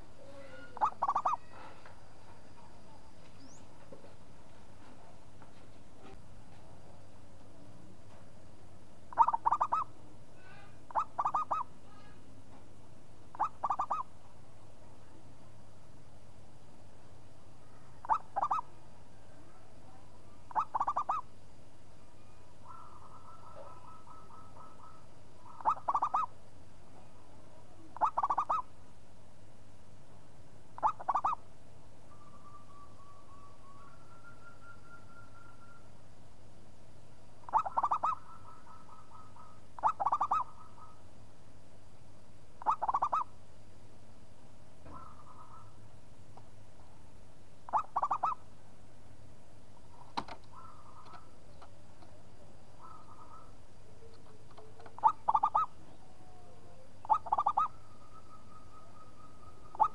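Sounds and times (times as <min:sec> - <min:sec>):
dove cooing: 0:00.2 - 0:01.7, 0:09.1 - 0:12.1, 0:13.3 - 0:14.1, 0:18.0 - 0:18.7, 0:20.5 - 0:21.3, 0:22.6 - 0:26.3, 0:28.0 - 0:28.7, 0:30.8 - 0:31.4, 0:37.4 - 0:41.0, 0:42.6 - 0:43.3, 0:44.8 - 0:45.8, 0:47.7 - 0:48.4, 0:50.5 - 0:59.9.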